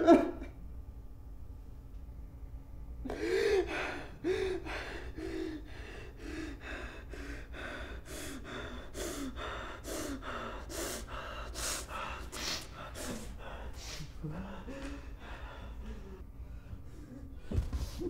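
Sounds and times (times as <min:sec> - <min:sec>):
man sobbing: 0:12.8 - 0:16.2.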